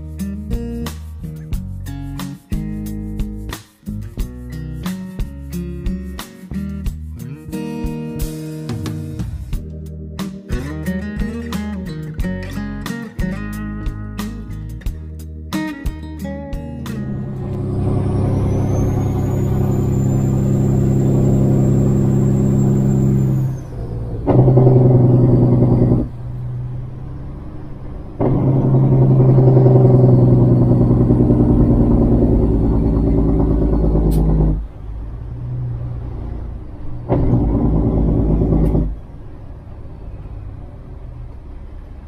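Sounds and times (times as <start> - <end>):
truck diesel engine pulling hard: 16.7 - 42.0
high whistle: 17.2 - 24.2.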